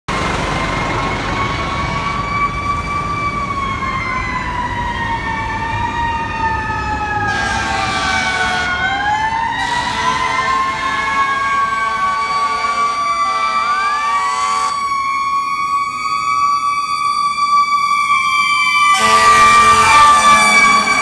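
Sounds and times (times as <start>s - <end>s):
sirens wailing: 0.1s - 21.0s
air horn blasts: 7.3s - 8.8s, 9.6s - 11.2s, 11.8s - 14.8s, 18.9s - 21.0s.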